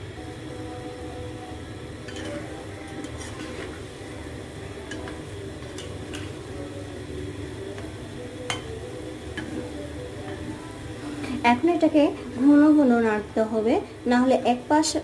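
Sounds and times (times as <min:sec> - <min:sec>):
dough frying in oil: 0:00.0 - 0:15.0
metal spatula clinking on pan: 0:02.1 - 0:02.4.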